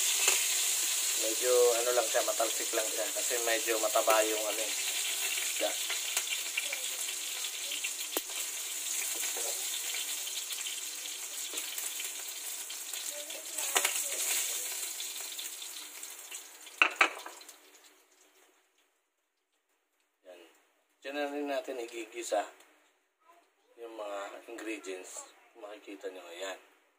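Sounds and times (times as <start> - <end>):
fish sizzling in hot oil: 0.0 - 18.4.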